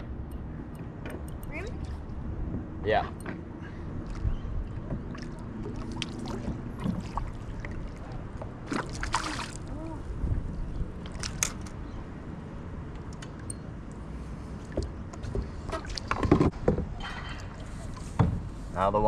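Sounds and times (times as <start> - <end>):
water lapping against kayak hull: 3.7 - 10.4, 14.4 - 16.6
water splashing: 4.0 - 10.2.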